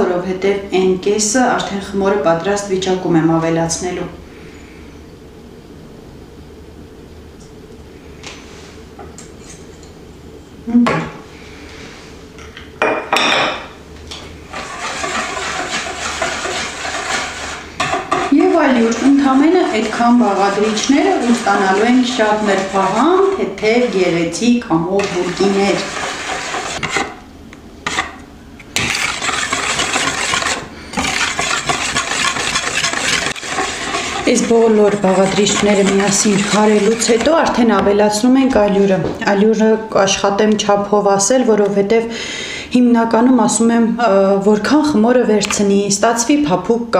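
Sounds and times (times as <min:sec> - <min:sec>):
spoon scraping ceramic bowl: 0:14.5 - 0:27.2, 0:27.9 - 0:28.2, 0:28.8 - 0:37.6.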